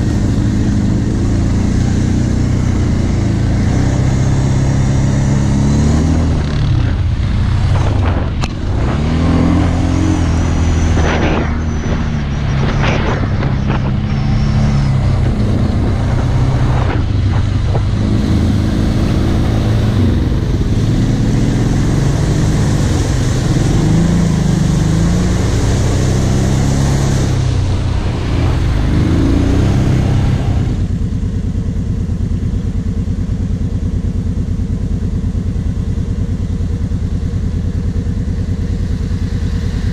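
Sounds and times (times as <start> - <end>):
water and mud splashing: 0.0 - 31.8
quad bike engine: 0.0 - 39.9.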